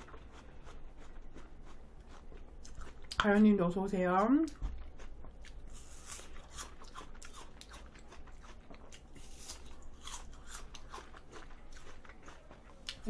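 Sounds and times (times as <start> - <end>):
apple crunching: 4.4 - 13.0.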